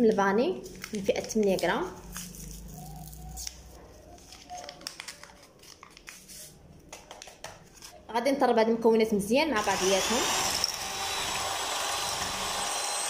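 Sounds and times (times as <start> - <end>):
paper sachet tearing and crinkling: 0.6 - 6.6.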